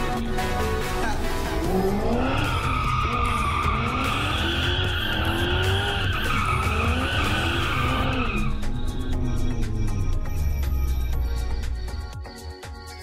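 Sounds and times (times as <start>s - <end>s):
car engine revving: 0.0s - 12.1s
music: 0.0s - 13.0s
tyres squealing: 2.2s - 9.3s.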